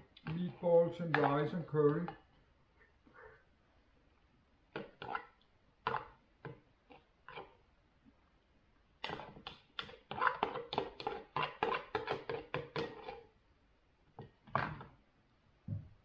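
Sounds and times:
cutlery scraping ceramic bowl: 0:04.8 - 0:06.1, 0:07.3 - 0:07.6, 0:09.0 - 0:13.3.

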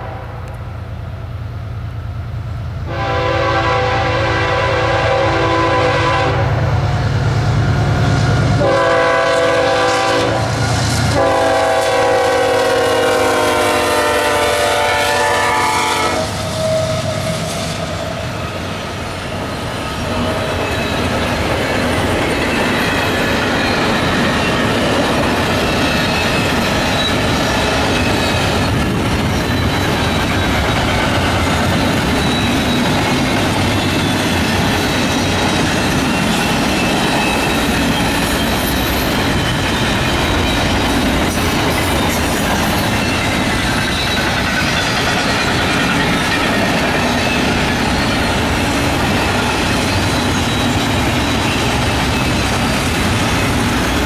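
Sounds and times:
train air horn blasts: 0:00.0 - 0:00.7, 0:02.8 - 0:06.8, 0:08.6 - 0:18.0
train wheels clattering on rails: 0:05.4 - 0:54.0.

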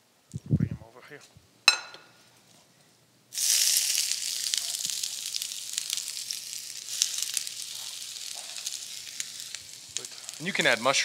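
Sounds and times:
vegetables sizzling in a pan: 0:03.3 - 0:11.0.

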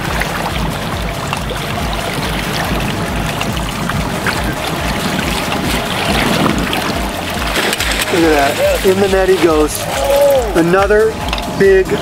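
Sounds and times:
water washing along boat: 0:00.0 - 0:12.0
wind rumbling on microphone: 0:00.0 - 0:12.0.

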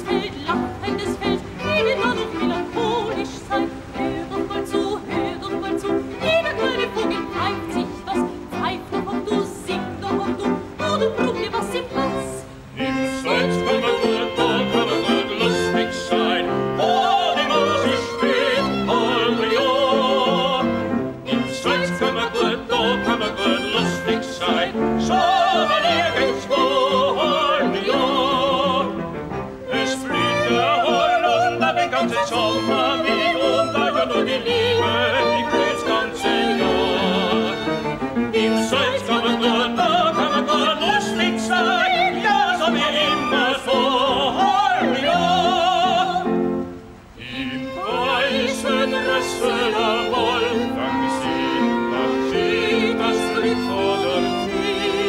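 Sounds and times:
string ensemble playing: 0:00.0 - 0:55.0
woman and man singing operatic duet: 0:00.0 - 0:55.0.

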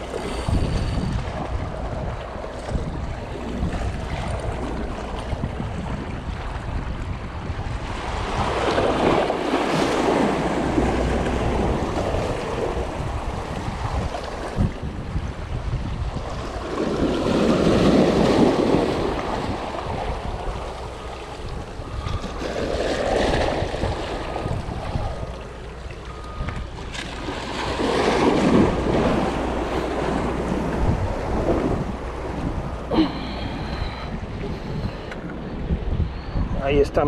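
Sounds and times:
wind rumbling on microphone: 0:00.0 - 0:37.0
small waves washing over rocks: 0:16.3 - 0:21.5, 0:26.9 - 0:32.4.

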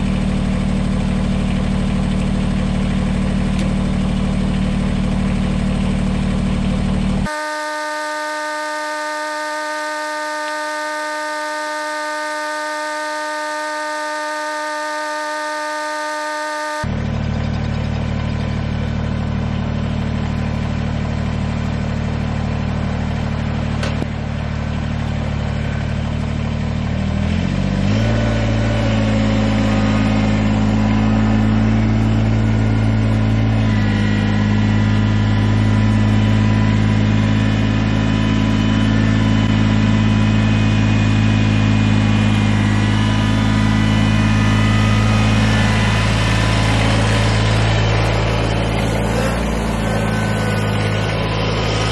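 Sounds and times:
tractor diesel engine running: 0:00.0 - 0:51.9.

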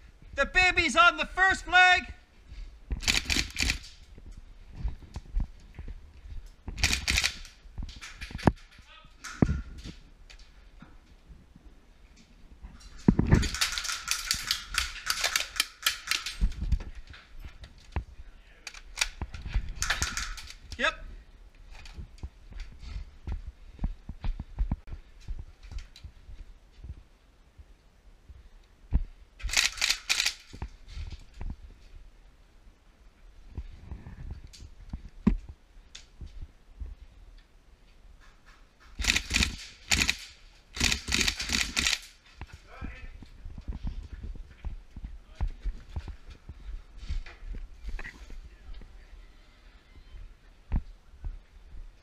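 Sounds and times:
airsoft rifle shots: 0:03.0 - 0:03.9, 0:06.8 - 0:07.5, 0:39.0 - 0:42.1.

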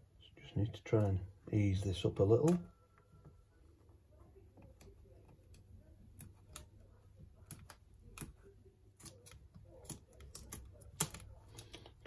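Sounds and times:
small clicks and taps: 0:04.5 - 0:12.0.

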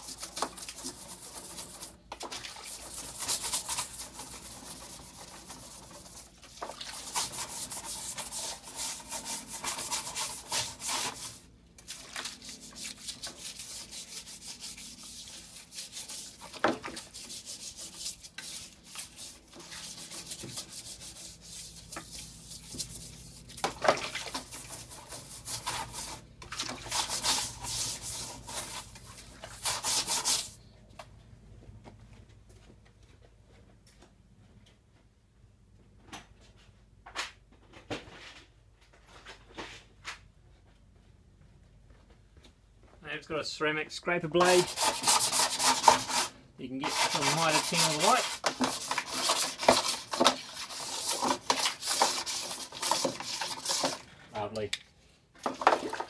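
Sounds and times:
brush scrubbing: 0:00.0 - 0:30.6, 0:44.3 - 0:54.1, 0:55.4 - 0:56.0.

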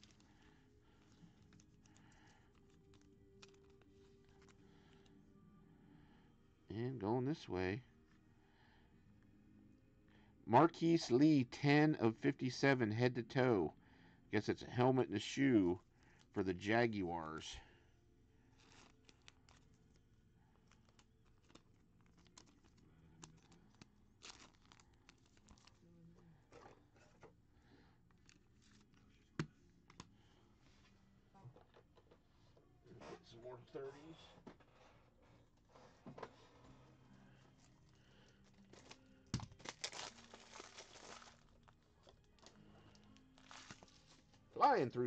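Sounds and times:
plastic packaging crinkling: 0:00.0 - 0:04.7, 0:18.6 - 0:20.0, 0:20.6 - 0:25.8, 0:37.6 - 0:44.4
cards rustling: 0:00.0 - 0:05.2, 0:18.5 - 0:25.8, 0:28.1 - 0:30.3, 0:35.6 - 0:44.4.

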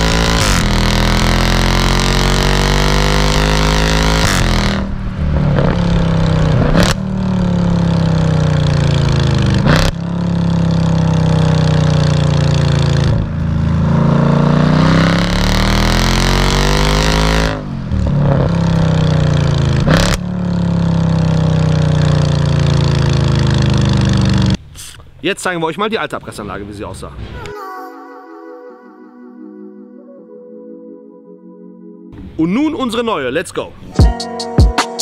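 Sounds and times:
car engine revving: 0:00.0 - 0:24.6
exhaust cracks: 0:00.0 - 0:25.2.

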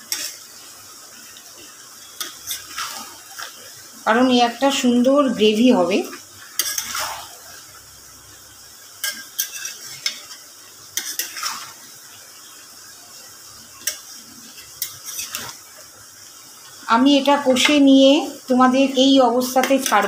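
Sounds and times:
spatula scraping metal pan: 0:00.0 - 0:00.4, 0:02.2 - 0:03.5, 0:06.5 - 0:07.4, 0:09.0 - 0:10.4, 0:11.0 - 0:11.8, 0:13.8 - 0:15.6
food sizzling: 0:00.0 - 0:20.0.

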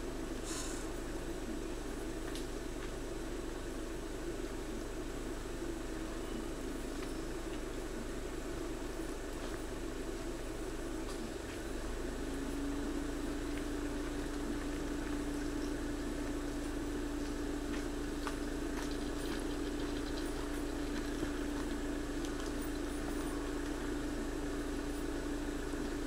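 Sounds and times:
constant hiss: 0:00.0 - 0:26.0
low mechanical hum: 0:00.0 - 0:26.0.

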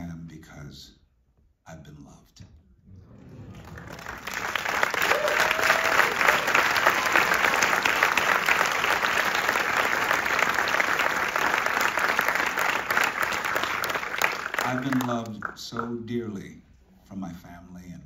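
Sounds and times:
audience applauding: 0:03.0 - 0:16.1.

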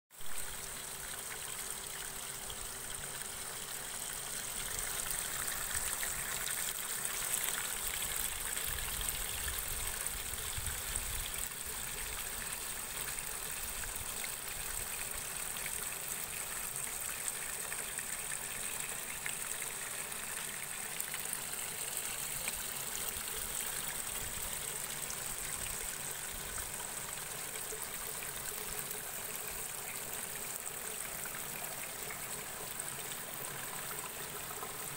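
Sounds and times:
water trickling and splashing: 0:00.2 - 0:34.9.

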